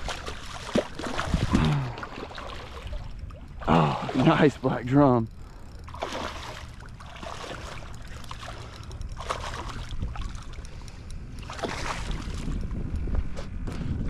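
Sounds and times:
wind rumbling on microphone: 0.0 - 2.2, 2.8 - 14.0
fish splashing at water surface: 0.0 - 4.4, 5.9 - 10.6.

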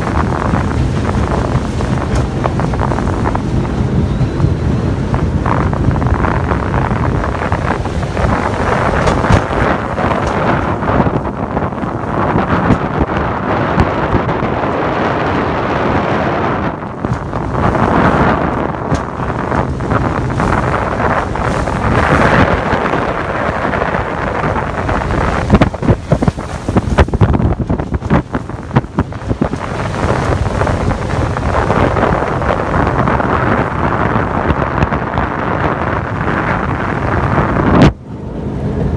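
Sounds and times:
boat engine: 0.0 - 38.9
rushing water: 0.0 - 38.9
wind buffeting microphone: 0.0 - 38.9.

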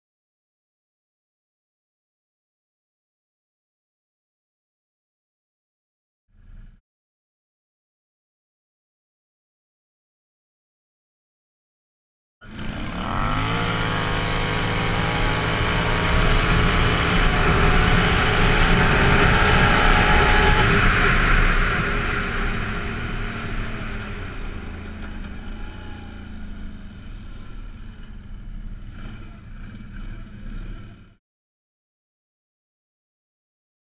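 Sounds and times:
atv engine accelerating: 12.4 - 31.2
wind rushing: 13.4 - 24.8.

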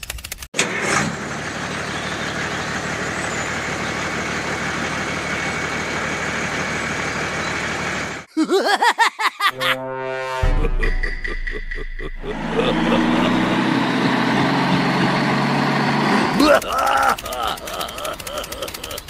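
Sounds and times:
truck engine running: 0.6 - 8.3, 12.2 - 19.0.

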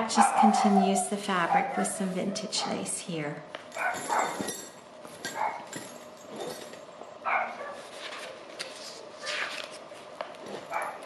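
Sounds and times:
dog barking: 0.1 - 3.0, 3.8 - 4.4, 5.3 - 5.7, 7.2 - 7.8, 10.7 - 11.0.

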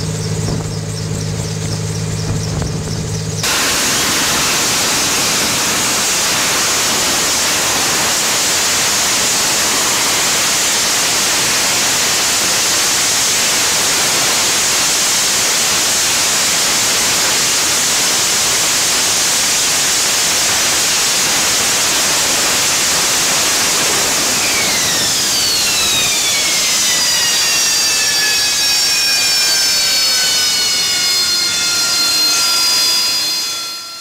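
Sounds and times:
jet engine running loud: 0.0 - 34.0
whining tones sliding down: 18.7 - 34.0.

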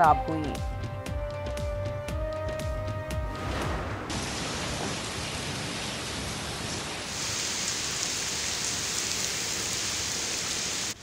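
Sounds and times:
heavy rain hissing: 4.1 - 11.0.

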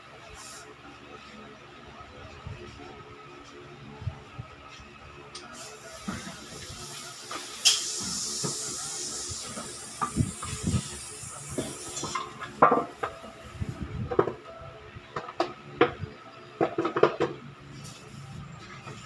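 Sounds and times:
steady hiss: 5.5 - 13.0.

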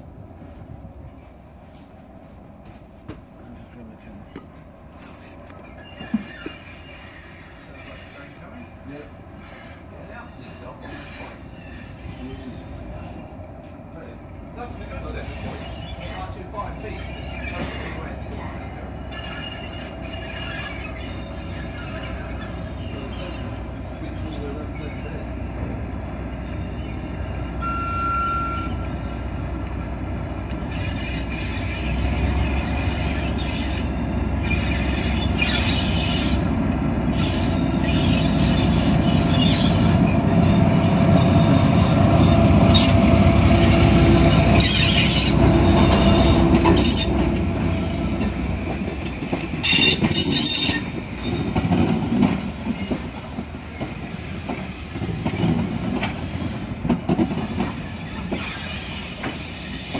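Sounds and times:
diesel locomotive engine: 0.0 - 59.9
wheel squeal: 5.6 - 13.2, 15.0 - 25.7, 30.6 - 36.5, 37.1 - 48.4, 49.0 - 54.4, 55.0 - 59.9
train wheels clacking on rail joints: 30.5 - 59.9.

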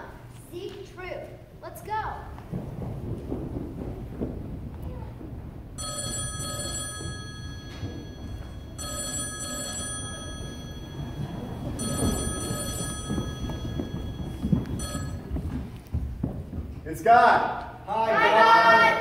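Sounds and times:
telephone ringing: 5.8 - 15.4.

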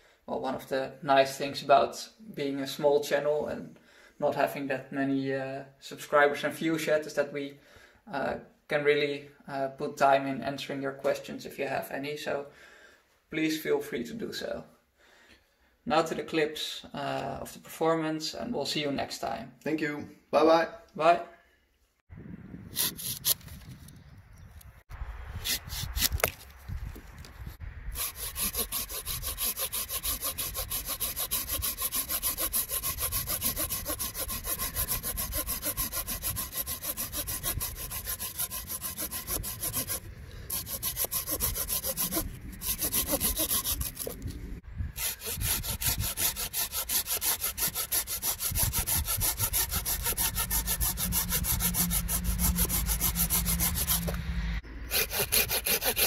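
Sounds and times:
hand saw cutting wood: 27.9 - 44.3, 45.0 - 54.3, 54.9 - 56.0.

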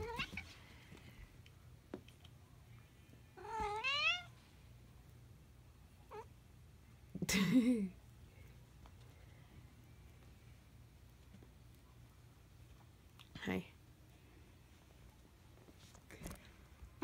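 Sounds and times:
cat meowing: 0.0 - 0.5, 3.4 - 4.3.

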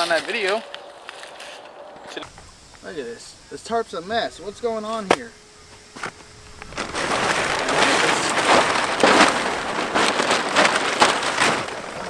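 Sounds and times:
tarp fabric rustling and crackling: 0.0 - 2.2, 6.4 - 12.0
tarp snapping: 0.0 - 2.2, 6.0 - 12.0.

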